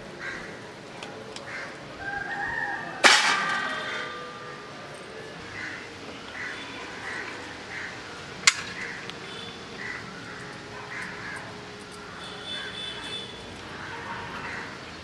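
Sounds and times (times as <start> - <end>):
crows cawing: 0.2 - 0.6, 1.4 - 3.0, 5.5 - 14.8.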